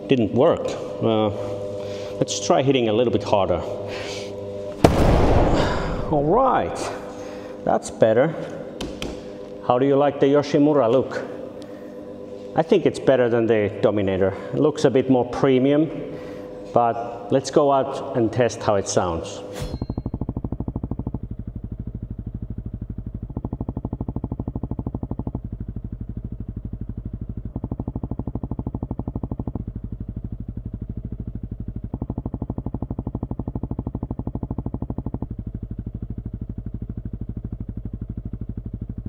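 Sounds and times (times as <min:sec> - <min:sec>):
motorcycle engine idling: 0:19.8 - 0:39.0.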